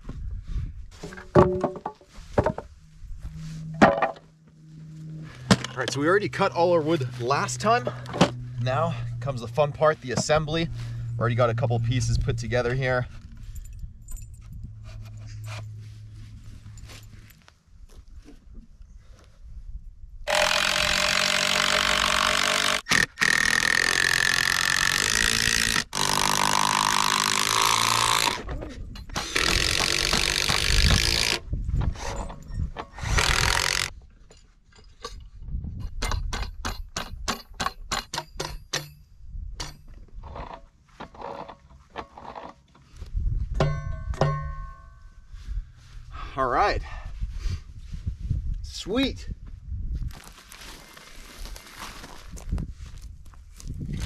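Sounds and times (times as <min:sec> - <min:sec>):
power drill running: 0:20.3 - 0:28.4, 0:29.2 - 0:31.4, 0:33.0 - 0:33.9.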